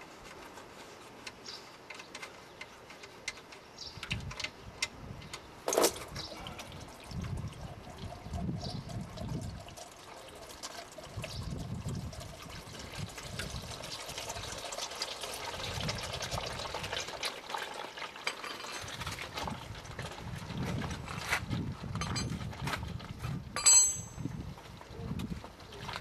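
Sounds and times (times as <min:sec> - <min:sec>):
oil pouring and gurgling: 0:06.3 - 0:22.6.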